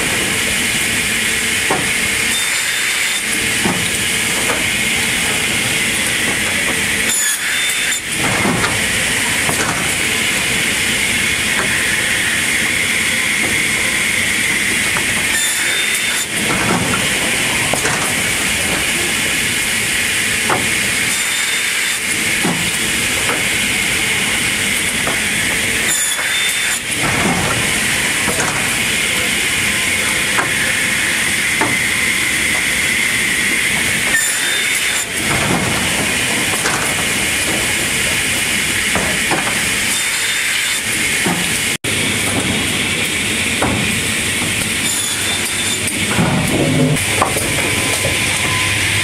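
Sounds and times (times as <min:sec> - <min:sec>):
hissing machine noise: 0:00.0 - 0:49.0.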